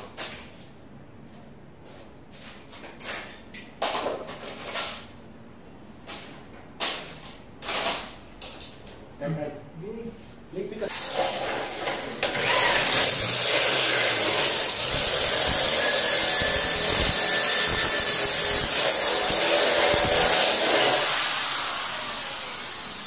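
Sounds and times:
electric drill drilling into metal: 0:12.3 - 0:23.0.

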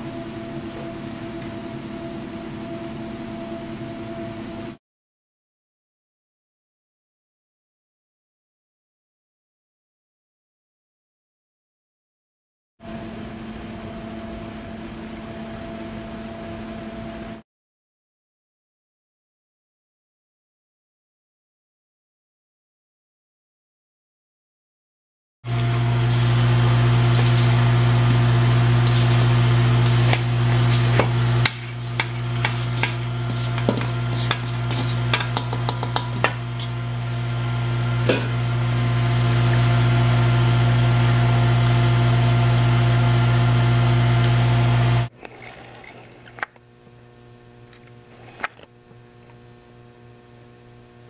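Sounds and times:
electric motor hum: 0:13.7 - 0:17.4, 0:25.5 - 0:51.0
spatula clicking and scraping bowl: 0:28.8 - 0:36.8.

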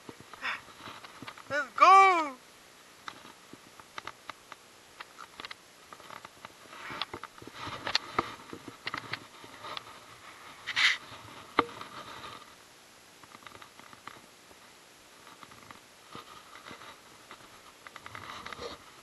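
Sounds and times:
rustling and scuffing handling noise: 0:05.8 - 0:12.6.

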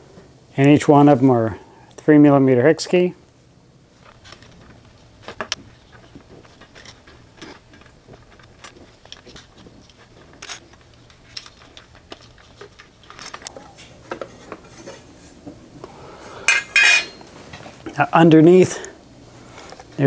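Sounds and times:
bolts clinking against metal: 0:16.5 - 0:17.3.

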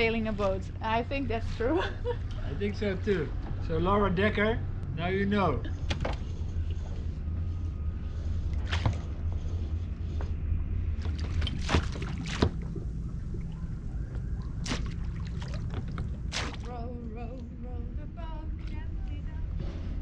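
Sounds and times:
steady low hum: 0:00.0 - 0:20.0
water sloshing and splashing: 0:08.1 - 0:09.9, 0:10.8 - 0:17.4
paddle dipping into water: 0:11.0 - 0:16.7.

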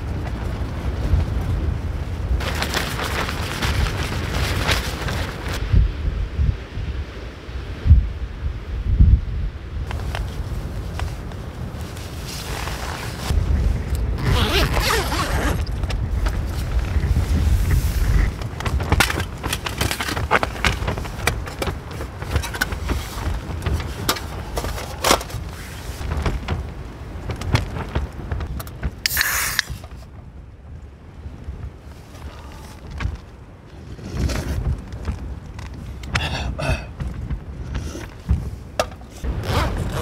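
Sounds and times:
strong wind buffeting tent: 0:00.0 - 0:40.0
backpack and gear rustling: 0:02.4 - 0:05.6, 0:09.9 - 0:26.7, 0:31.8 - 0:40.0
drink can cracking open: 0:29.1 - 0:29.8.

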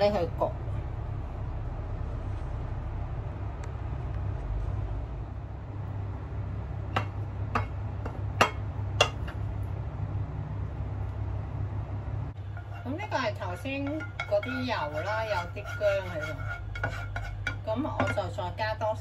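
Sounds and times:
steady low hum: 0:00.0 - 0:19.0
utensil clinking on pot and plate: 0:12.5 - 0:18.3.

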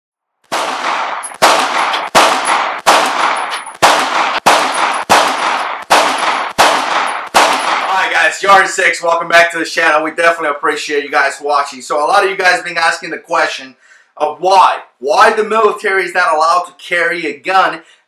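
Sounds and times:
pistol shots echoing: 0:00.4 - 0:08.2.

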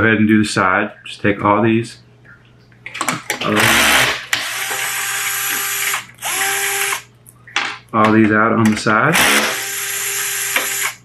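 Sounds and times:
electric screwdriver whirring: 0:03.6 - 0:07.1, 0:09.2 - 0:11.0.

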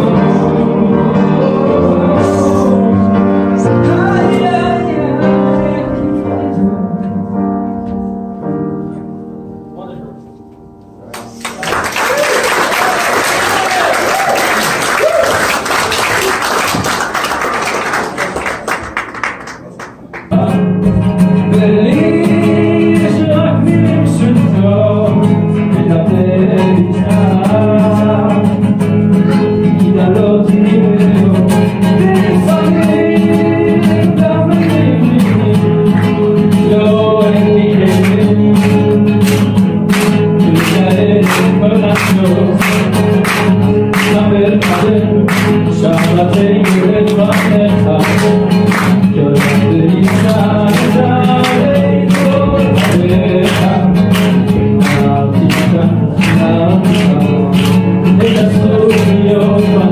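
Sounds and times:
man singing: 0:00.0 - 0:07.4, 0:20.2 - 0:59.9
acoustic guitar: 0:00.0 - 0:59.9
applause: 0:11.1 - 0:20.3, 0:38.0 - 0:59.2
rhythmic hand-clapping: 0:11.1 - 0:21.0, 0:31.4 - 0:59.9.

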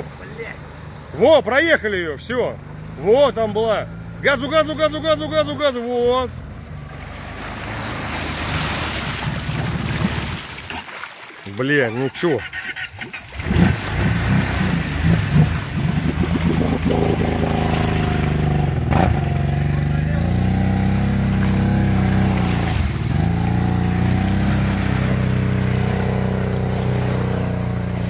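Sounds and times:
atv engine revving hard: 0:11.9 - 0:28.0.

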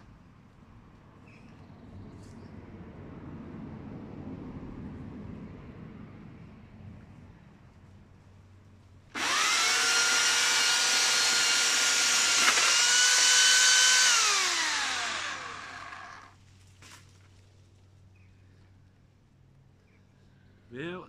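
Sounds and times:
electric chainsaw motor whining: 0:09.2 - 0:16.4.

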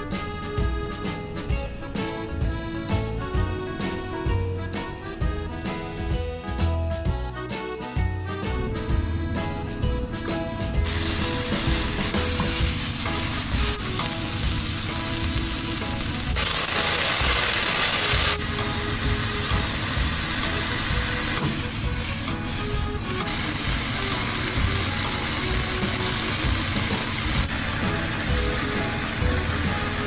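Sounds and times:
light background music: 0:00.0 - 0:30.0
peel sizzling in hot oil: 0:10.8 - 0:30.0.

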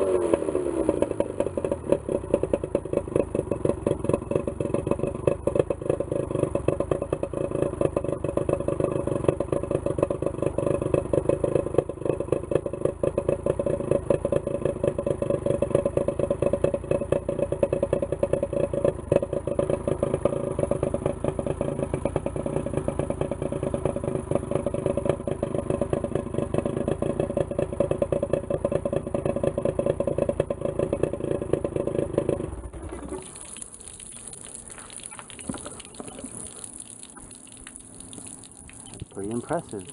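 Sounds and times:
outboard engine running: 0:00.0 - 0:39.9
rushing hose water: 0:32.8 - 0:39.9.

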